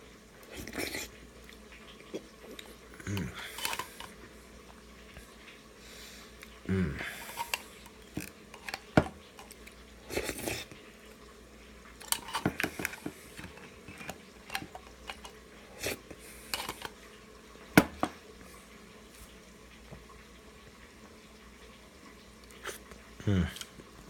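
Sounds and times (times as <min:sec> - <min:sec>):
metal spoon scraping tin can: 0:03.6 - 0:04.1, 0:12.0 - 0:13.0.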